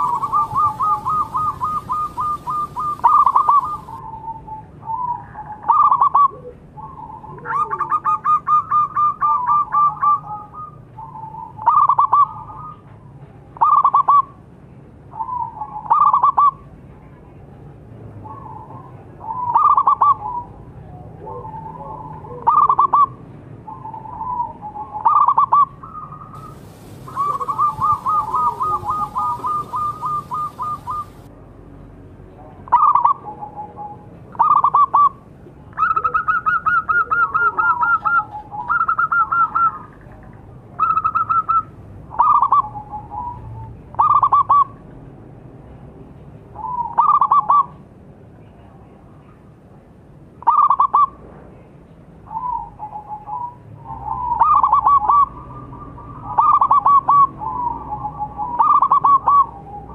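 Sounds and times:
dove cooing: 0.0 - 12.8, 15.2 - 16.6, 18.2 - 23.2, 23.8 - 31.3, 32.7 - 35.2, 35.8 - 40.2, 40.8 - 44.8, 46.6 - 47.7, 52.3 - 59.9.

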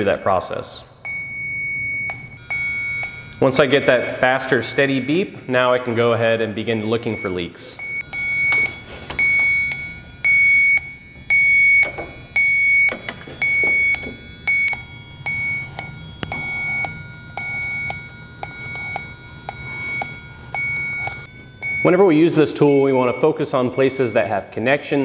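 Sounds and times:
leak detector beeping: 0.0 - 25.0.

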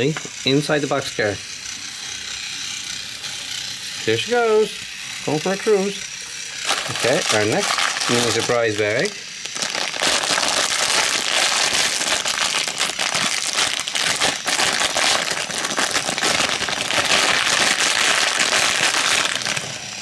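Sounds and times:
plastic bag crinkling: 6.6 - 19.8.

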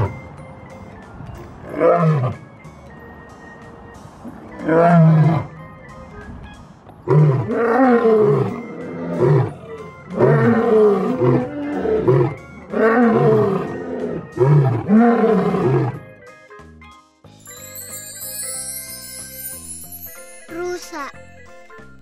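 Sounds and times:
music: 0.0 - 22.0
lion roaring: 7.1 - 16.0.

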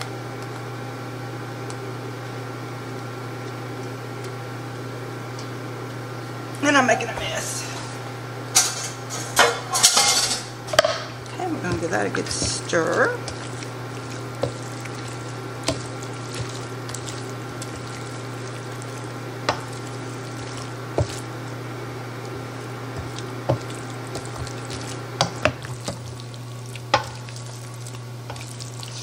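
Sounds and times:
spoon stirring wet mixture: 11.1 - 29.0.

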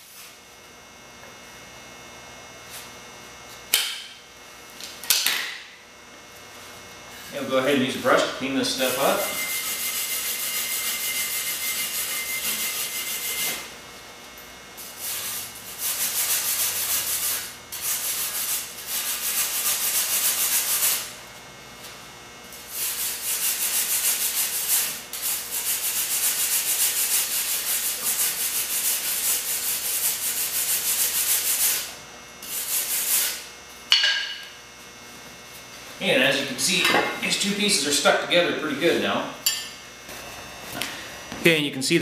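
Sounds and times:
brush scrubbing steel: 8.7 - 13.6, 14.9 - 21.1, 22.6 - 33.4.

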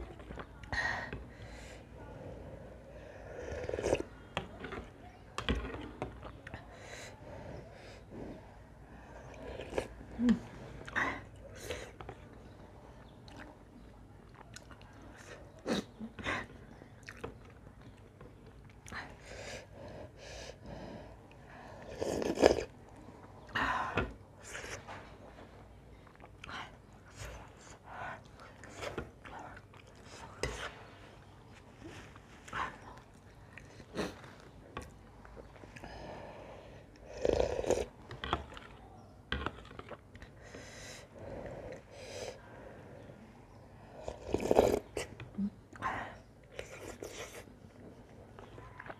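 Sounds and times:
person slurping soup: 21.8 - 22.7, 37.0 - 38.3, 43.9 - 45.2.

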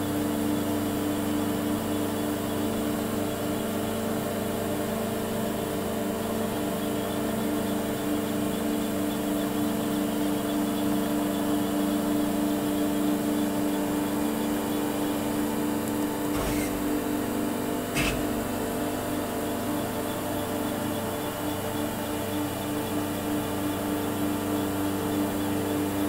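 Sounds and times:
machine hum: 16.1 - 19.2
short knocks: 16.4 - 17.2, 18.0 - 18.8.

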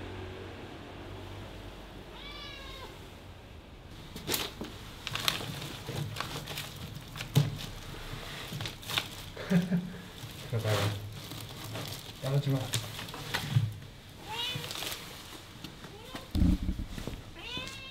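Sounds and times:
cat meowing: 2.1 - 3.0, 14.3 - 14.8, 15.9 - 17.9
paper rustling and crinkling: 4.0 - 17.8.

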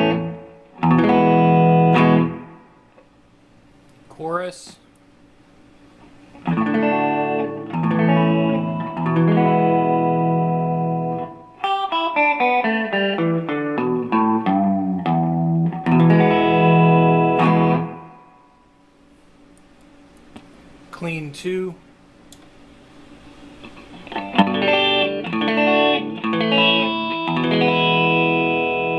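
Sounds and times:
electric guitar with chorus: 0.0 - 3.1, 6.3 - 18.7, 23.6 - 28.9.

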